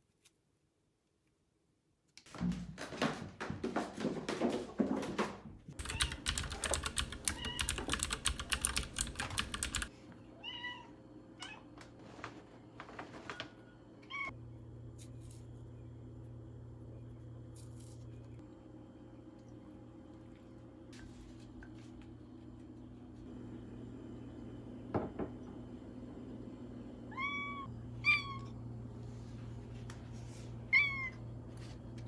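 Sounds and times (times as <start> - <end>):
footsteps: 2.3 - 5.7
fast clicking and rattling: 5.8 - 9.9
low steady hum: 8.8 - 32.0.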